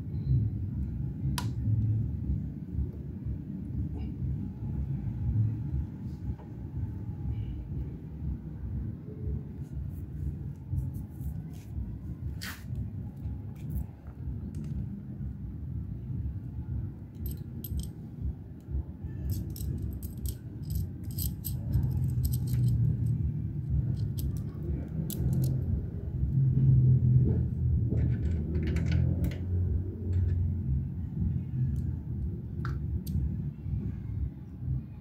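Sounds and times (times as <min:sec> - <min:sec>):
low steady rumble: 0:00.0 - 0:35.0
metal parts and tools clinking: 0:17.2 - 0:17.9, 0:19.1 - 0:25.7.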